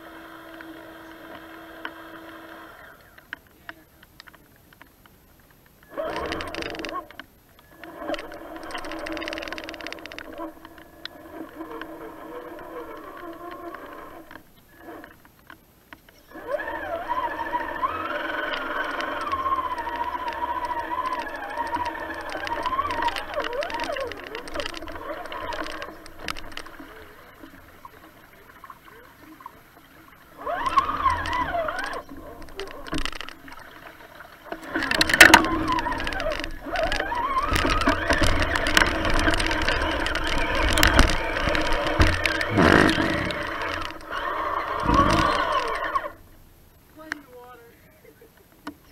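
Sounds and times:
faint rapid clicking: 0.4s - 47.6s
electric motor whining: 16.3s - 27.6s, 30.4s - 33.6s, 34.5s - 46.2s
branches scraping and knocking: 17.2s - 27.6s, 30.4s - 46.2s.

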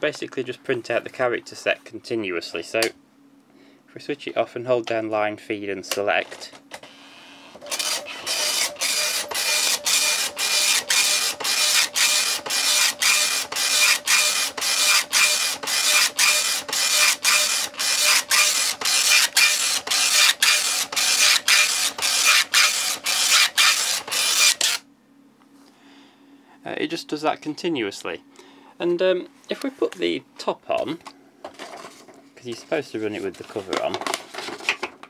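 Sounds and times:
dot-matrix printer printing: 7.6s - 24.8s.

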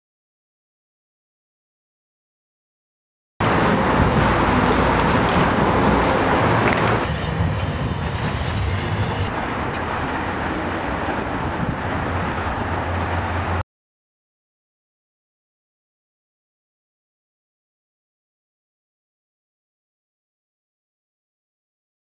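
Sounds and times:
excavator diesel engine running: 3.4s - 13.6s.

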